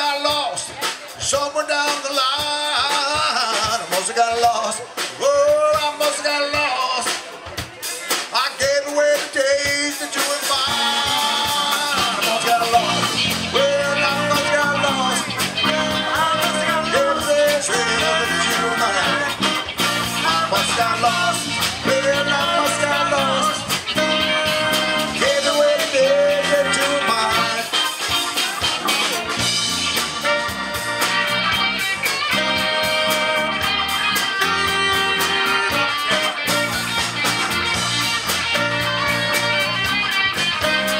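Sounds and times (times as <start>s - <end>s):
man singing: 0.0s - 29.5s
live band playing blues-rock: 0.0s - 40.9s.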